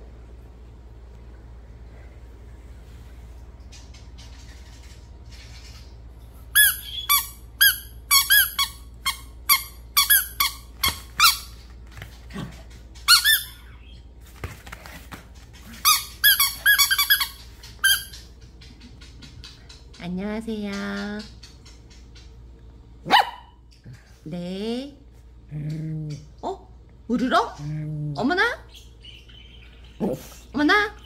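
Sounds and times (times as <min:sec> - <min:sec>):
squeaky dog toy squeaking: 0:06.6 - 0:11.5, 0:13.1 - 0:13.6, 0:15.8 - 0:18.1.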